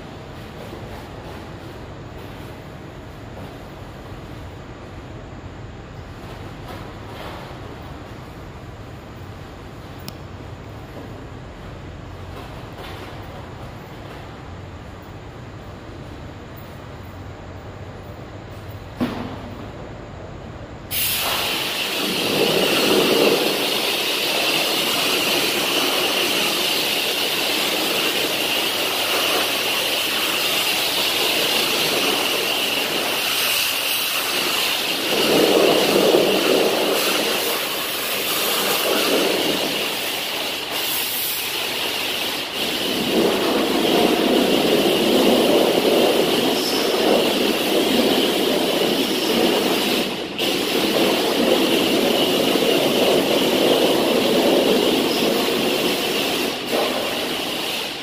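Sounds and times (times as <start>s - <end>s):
pressure washer jet hissing: 20.9s - 58.0s.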